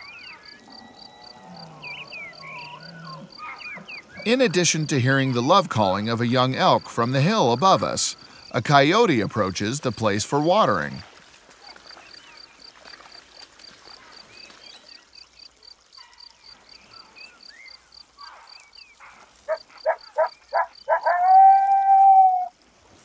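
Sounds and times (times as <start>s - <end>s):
wild animal calling: 0.0s - 5.5s, 19.0s - 22.5s
cricket chirping: 0.0s - 23.0s.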